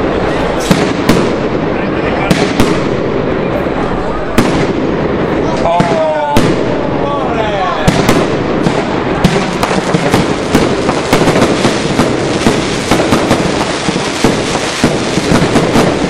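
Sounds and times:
fireworks cracking: 0.0s - 16.0s.

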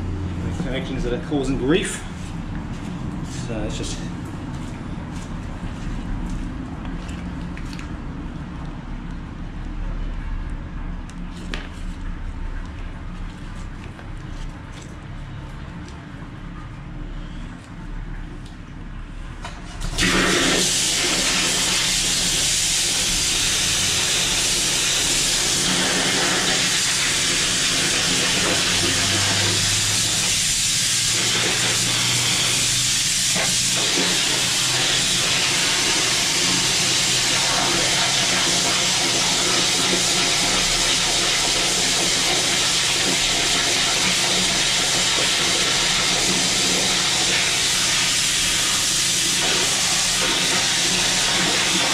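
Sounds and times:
high-pressure water jet spraying: 19.9s - 51.9s.

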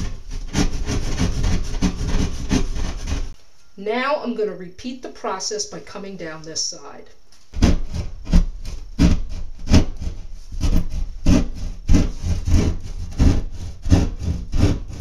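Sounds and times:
hand saw rasping through drywall: 0.0s - 3.4s, 7.5s - 15.0s.

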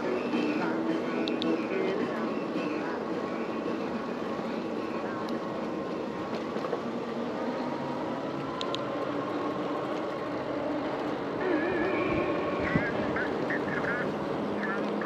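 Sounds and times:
rushing wind: 0.0s - 15.0s.

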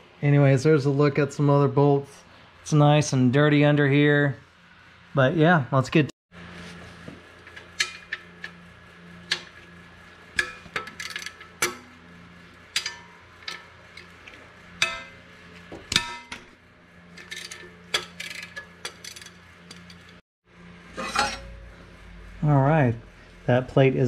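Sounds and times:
wrench clinking on steel bolts: 12.7s - 15.2s.

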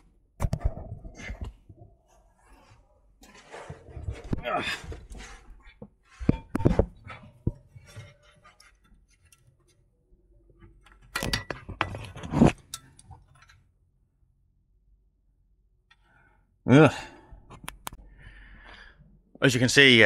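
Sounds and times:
metal fitting clinking and knocking: 6.2s - 9.8s, 10.6s - 13.7s.

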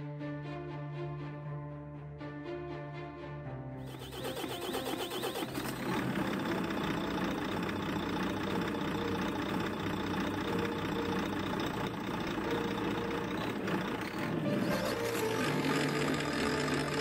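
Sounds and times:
truck diesel engine idling: 3.8s - 17.0s.

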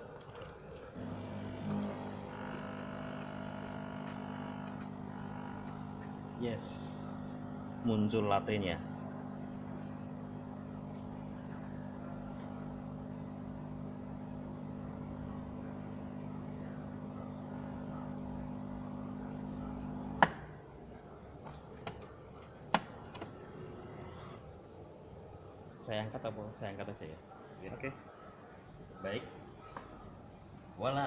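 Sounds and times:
espresso machine pump humming: 0.0s - 20.3s.

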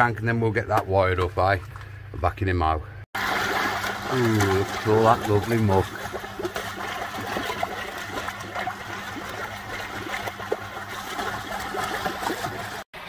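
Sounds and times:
low steady hum: 0.0s - 13.0s
water bubbling and trickling: 3.2s - 12.9s.

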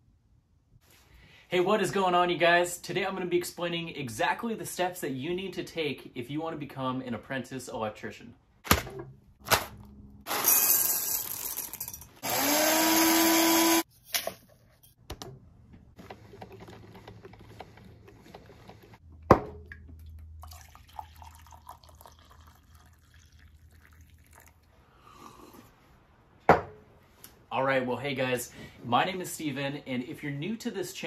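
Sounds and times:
coffee maker humming: 12.2s - 13.8s, 16.0s - 19.0s
water running into carafe: 19.7s - 24.7s
coffee pouring into mug: 20.4s - 25.6s.

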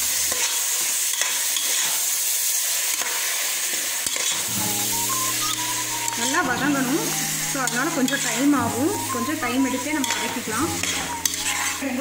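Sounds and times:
onions and tomatoes sizzling: 0.0s - 12.0s
spoon knocking against pot: 10.0s - 10.2s.

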